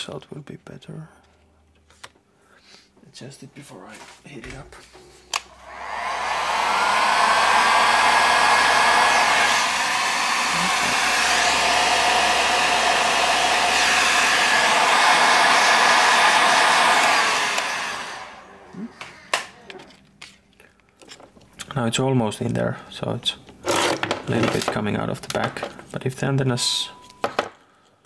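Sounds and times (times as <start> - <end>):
heat gun blowing hot air: 5.3 - 19.5.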